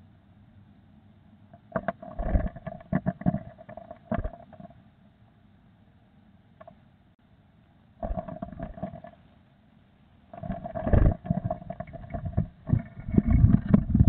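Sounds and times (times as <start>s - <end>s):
bird scrabbling in nest box: 1.6s - 4.8s, 8.0s - 9.2s, 10.3s - 14.0s.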